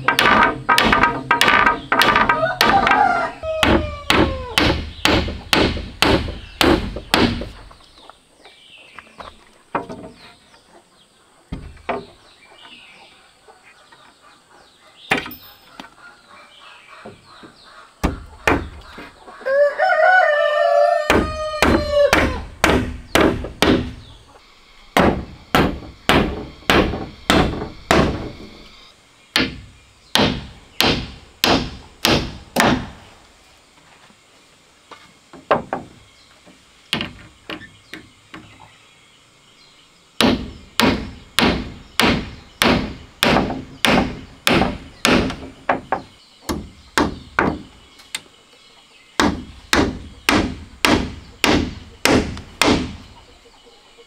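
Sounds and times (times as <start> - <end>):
rooster crowing: 2.3 - 4.6, 19.4 - 22.4.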